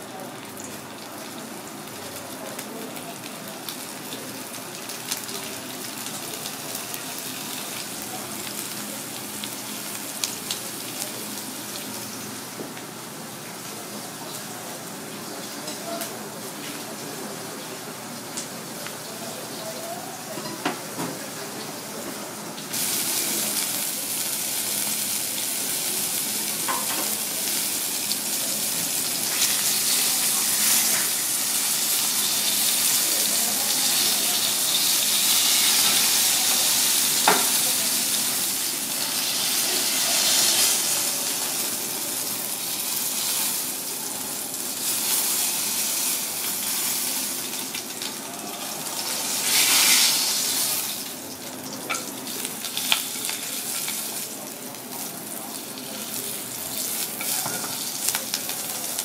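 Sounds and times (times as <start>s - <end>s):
fish sizzling in oil: 0.0s - 20.4s, 21.4s - 59.0s.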